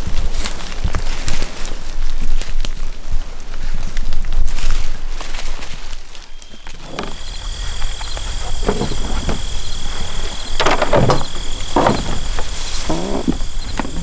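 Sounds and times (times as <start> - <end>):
gear clattering and rustling: 4.6 - 14.0
insect chirps: 5.5 - 14.0
insects trilling: 5.6 - 14.0.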